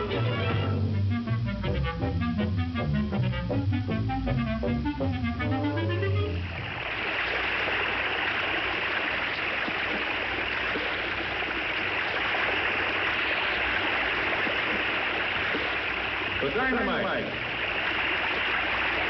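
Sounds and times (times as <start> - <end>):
orchestral music: 0.0 - 6.5
waterfall rushing: 6.6 - 19.0.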